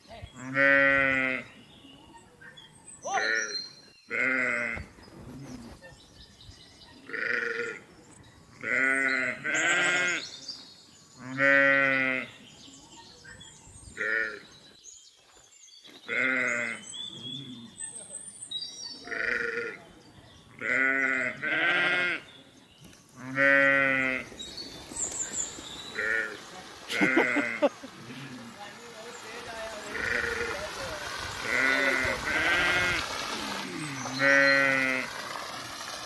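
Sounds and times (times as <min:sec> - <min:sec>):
sheep and goats bleating: 0:00.3 - 0:01.6, 0:04.1 - 0:04.9, 0:07.1 - 0:07.8, 0:08.6 - 0:10.3, 0:11.2 - 0:12.4, 0:14.0 - 0:14.4, 0:16.1 - 0:17.4, 0:19.0 - 0:19.8, 0:20.6 - 0:22.3, 0:23.2 - 0:24.3, 0:25.9 - 0:28.5, 0:29.3 - 0:30.8, 0:31.4 - 0:35.1.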